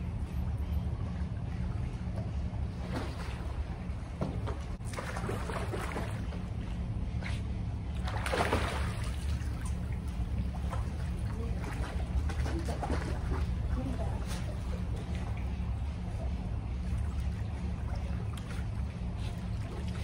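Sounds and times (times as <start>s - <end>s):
water splashing in a pool: 2.6s - 6.5s, 7.9s - 20.0s.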